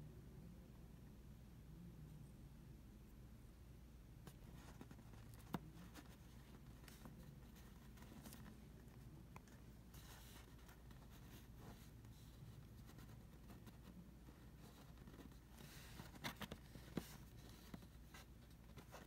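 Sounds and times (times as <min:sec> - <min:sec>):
fingers rustling on paper: 0:04.3 - 0:19.0.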